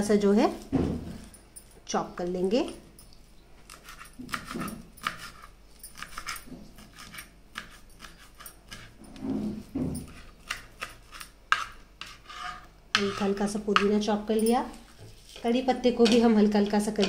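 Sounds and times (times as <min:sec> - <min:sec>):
knife chopping on cutting board: 0:03.7 - 0:05.4.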